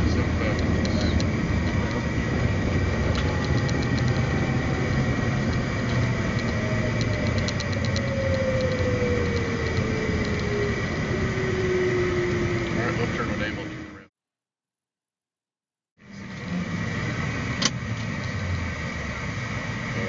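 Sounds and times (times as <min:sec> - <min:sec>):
cockpit rumble and rush: 0:00.0 - 0:14.1, 0:16.0 - 0:20.0
jet engine whine falling: 0:00.0 - 0:14.1.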